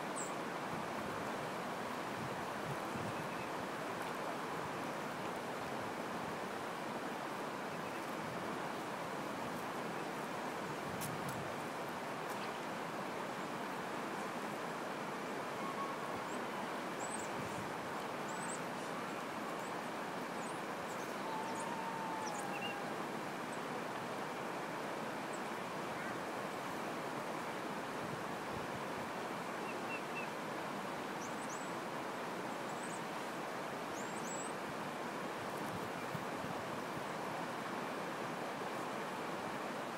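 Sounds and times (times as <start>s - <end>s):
river running over rocks: 0.0s - 39.9s
faint bird chirps: 15.5s - 17.4s, 20.4s - 22.9s.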